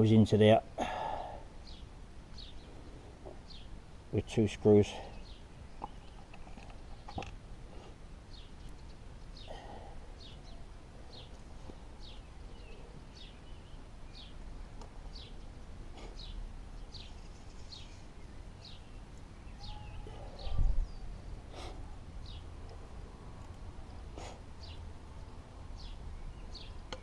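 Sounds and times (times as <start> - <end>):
small bird chirping: 1.6 - 3.8, 5.1 - 7.4, 8.3 - 21.4, 23.9 - 27.0.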